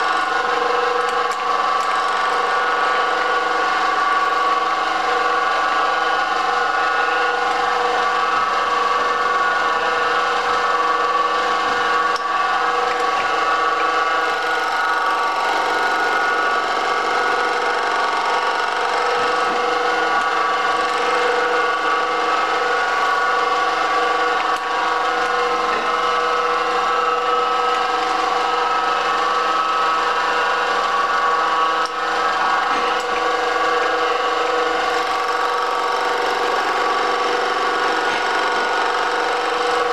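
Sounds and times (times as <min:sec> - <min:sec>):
milling machine running: 0:00.0 - 0:39.9.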